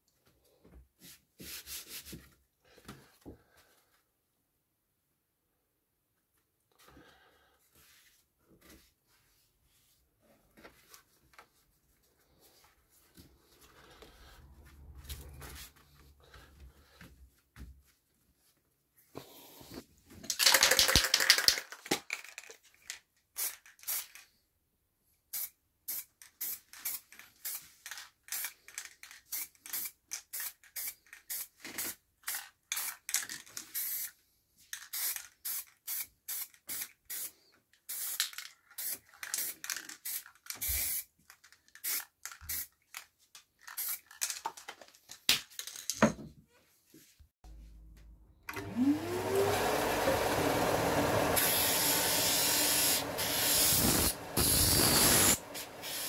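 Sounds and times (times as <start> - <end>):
spray paint can hissing: 23.4 - 24.2, 25.3 - 28.5, 29.3 - 31.9, 33.8 - 34.1, 34.9 - 37.3, 37.9 - 41.1, 41.8 - 42.7, 43.7 - 44.1, 51.4 - 56.0.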